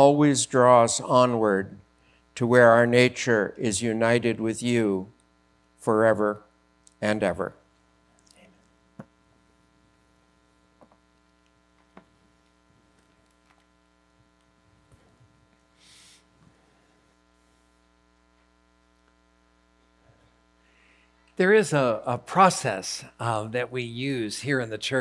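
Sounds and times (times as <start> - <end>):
electrical mains hum: 0.0 - 25.0
short hiss: 15.7 - 16.3.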